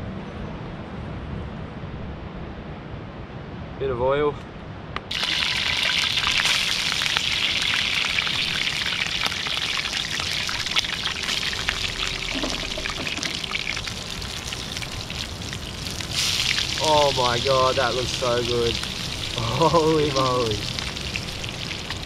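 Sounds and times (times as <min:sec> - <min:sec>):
fish sizzling in hot oil: 0:05.1 - 0:22.0.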